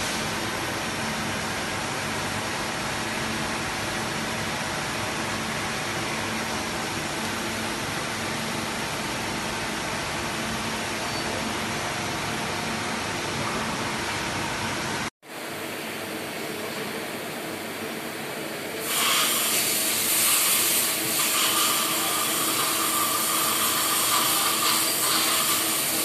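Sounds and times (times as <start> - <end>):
machine shop din: 16.3 - 26.0.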